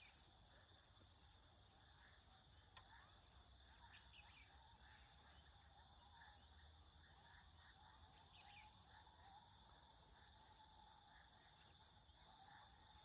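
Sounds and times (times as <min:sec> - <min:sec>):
insect drone: 0:00.0 - 0:13.0
soft bird chirps: 0:00.0 - 0:13.0.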